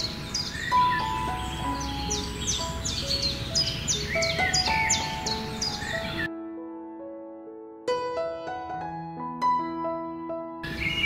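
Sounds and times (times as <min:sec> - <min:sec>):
birds chirping: 0:00.0 - 0:06.3, 0:10.6 - 0:11.0
soft keyboard music: 0:00.0 - 0:11.0.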